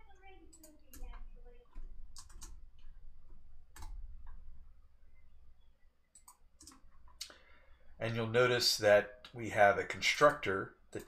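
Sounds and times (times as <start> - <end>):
keyboard and mouse clicks: 0.5 - 4.5, 6.1 - 7.4.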